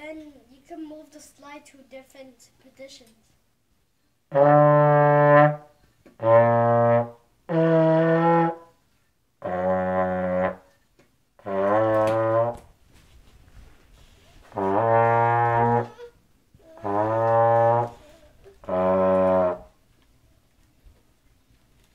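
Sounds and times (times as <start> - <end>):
trombone held notes: 4.3 - 8.7, 9.4 - 10.7, 11.4 - 12.7, 14.5 - 16.0, 16.6 - 19.8.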